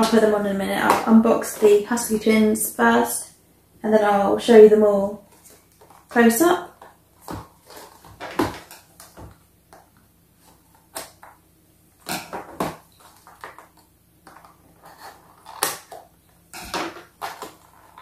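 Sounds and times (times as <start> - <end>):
packaging rustling: 6.8 - 9.5, 12.1 - 16.1.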